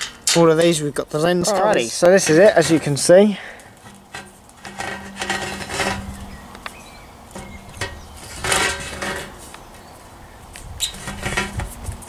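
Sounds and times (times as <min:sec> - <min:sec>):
rub or rustle: 0:10.5 - 0:12.0.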